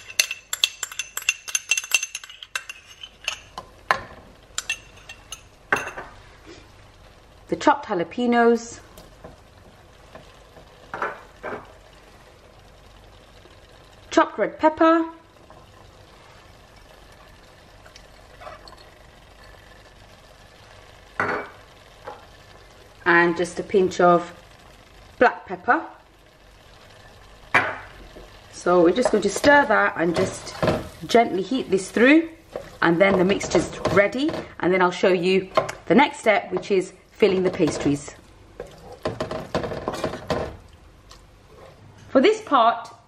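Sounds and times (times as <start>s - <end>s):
spoon clinking on ceramic pot: 0.0s - 3.6s.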